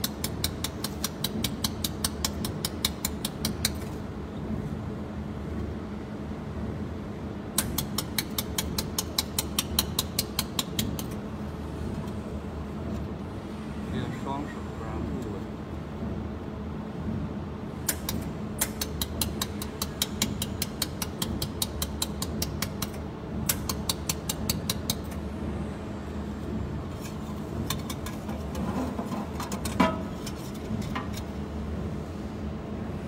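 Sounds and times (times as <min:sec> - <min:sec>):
steady machine hum: 0:00.0 - 0:33.0.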